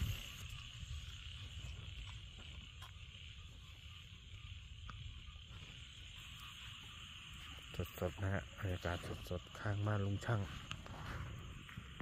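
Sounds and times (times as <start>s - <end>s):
frogs calling: 0.0s - 12.0s.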